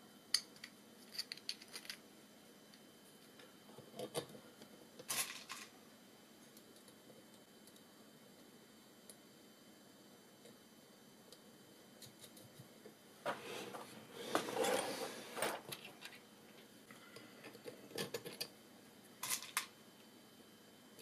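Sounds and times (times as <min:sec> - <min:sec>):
hardware clattering on a desk: 0:13.2 - 0:16.2.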